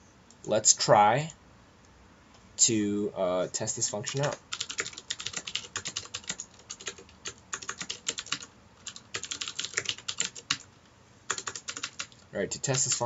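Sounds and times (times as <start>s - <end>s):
typing on computer keyboard: 4.0s - 10.7s, 11.3s - 13.0s.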